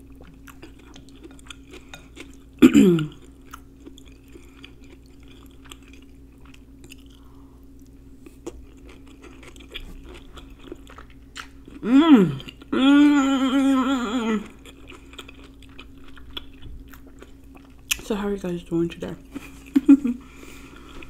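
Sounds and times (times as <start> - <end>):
chewing food: 0.0 - 18.1
faint steady hum: 0.0 - 21.0
person saying mmm: 11.8 - 14.5.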